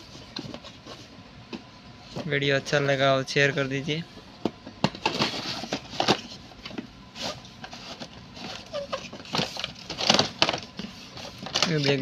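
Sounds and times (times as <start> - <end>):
cardboard box rustling and scraping: 5.0 - 12.0.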